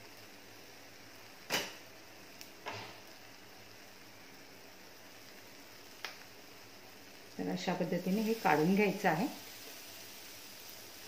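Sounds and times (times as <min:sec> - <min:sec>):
butter sizzling: 0:00.0 - 0:11.0
knocks on frying pan: 0:01.5 - 0:01.8.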